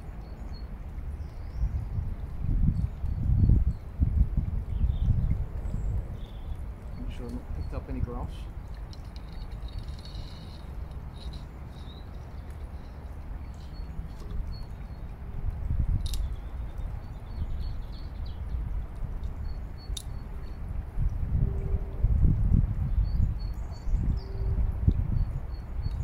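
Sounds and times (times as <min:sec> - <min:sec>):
small birds chirping: 0:04.7 - 0:15.2.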